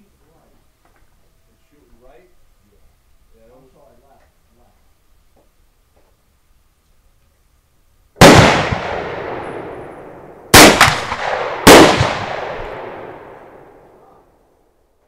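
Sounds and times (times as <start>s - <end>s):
smaller gunshot crack: 8.2s - 9.8s, 10.5s - 13.7s
rifle shots with echo: 8.2s - 14.1s.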